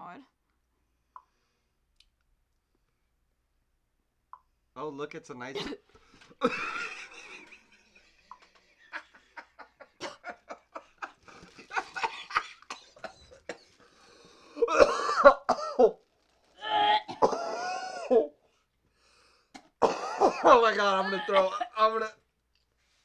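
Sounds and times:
woman coughing and gagging: 5.6 - 7.1, 9.9 - 10.6, 11.9 - 13.7, 14.6 - 16.0, 16.7 - 18.4, 19.8 - 22.1
plastic bag crackling: 11.2 - 12.0
woman retching: 14.6 - 16.0, 16.6 - 18.4.

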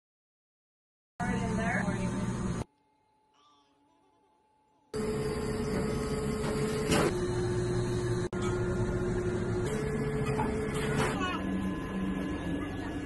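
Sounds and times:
ice cream machine motor hum: 1.2 - 2.7, 5.0 - 13.0.

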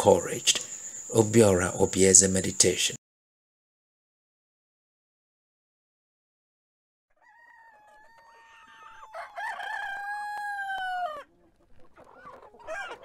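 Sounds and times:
rooster crowing: 7.1 - 11.4.

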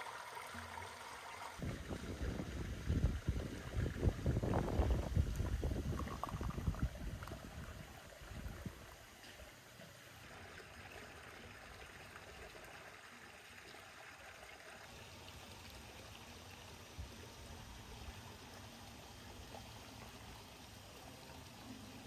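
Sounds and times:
faint steady hiss: 0.0 - 22.0
tea pouring into glass: 4.5 - 7.9.

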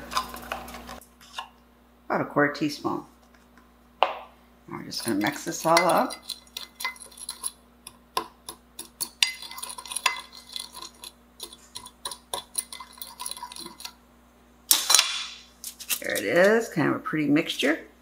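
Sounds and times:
metal spoon clinking on glass: 5.0 - 7.6, 8.5 - 13.9.

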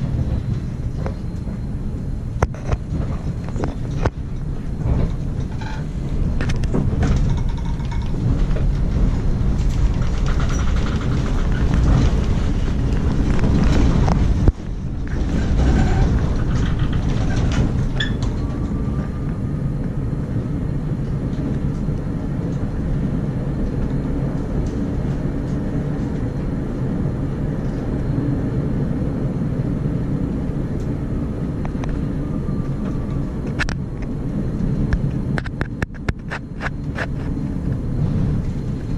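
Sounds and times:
tram wheels rumbling on rails: 0.0 - 38.9
clicks and rattles: 6.4 - 18.6.

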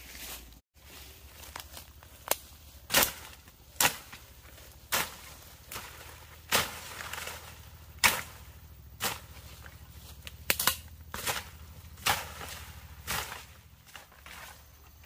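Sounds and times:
hoe striking soil: 2.3 - 14.5.

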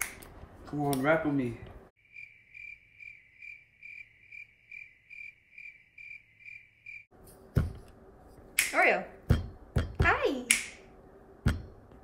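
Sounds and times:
sharp snap: 0.0 - 0.3, 8.6 - 8.8, 10.5 - 10.8
cricket chirping: 2.0 - 7.1.

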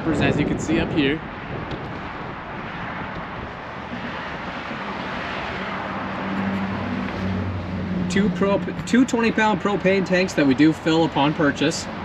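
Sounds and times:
road traffic passing: 0.0 - 12.0
low engine hum: 0.8 - 8.9.

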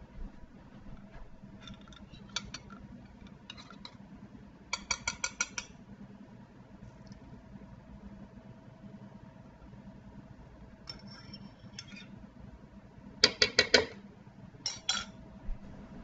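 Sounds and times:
ceramic pot clinking: 14.7 - 15.1.

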